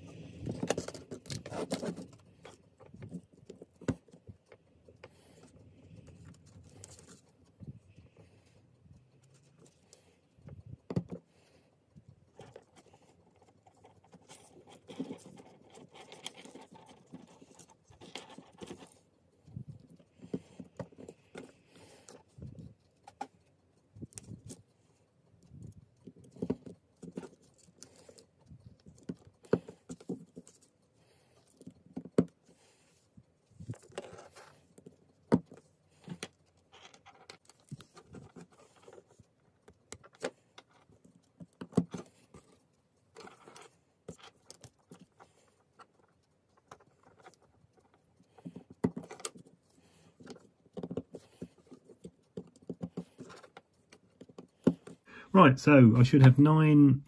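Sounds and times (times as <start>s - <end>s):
wires rustling: 0.0s - 55.1s.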